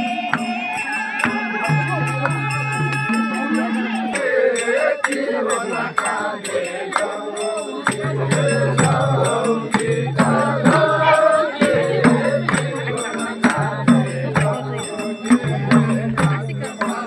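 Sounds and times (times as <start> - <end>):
group of voices singing: 0.0 - 17.0
drum beat: 6.9 - 17.0.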